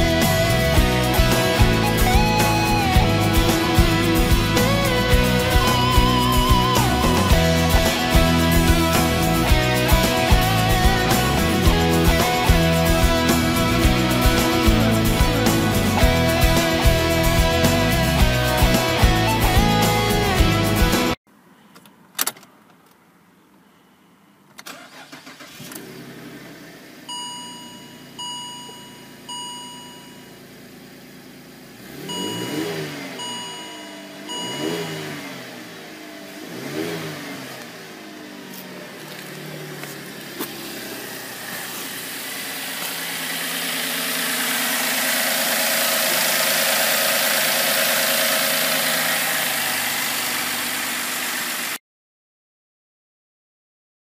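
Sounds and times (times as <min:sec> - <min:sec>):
car engine starting and idling: 0:00.0 - 0:21.2, 0:24.4 - 0:51.8
engine revving: 0:00.0 - 0:21.2, 0:31.6 - 0:51.8
dashboard warning chimes: 0:27.1 - 0:30.5, 0:31.9 - 0:35.5.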